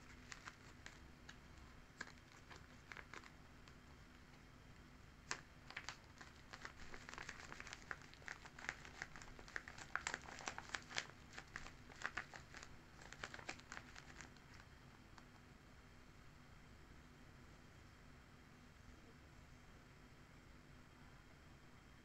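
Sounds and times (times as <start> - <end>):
paper crinkling and rustling: 0.0 - 3.9, 5.2 - 15.3.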